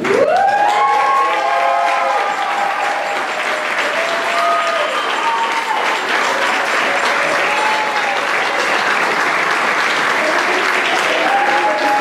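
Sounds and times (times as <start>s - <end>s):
crowd applauding: 0.0s - 12.0s.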